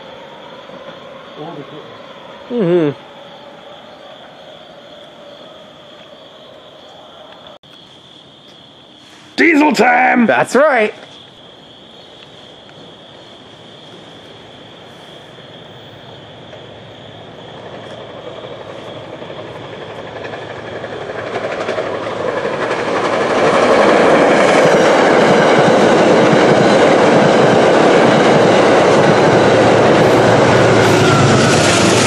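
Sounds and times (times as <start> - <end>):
train rumble: 0.0 - 7.6, 12.2 - 32.0
wheels clattering over rails: 16.3 - 32.0.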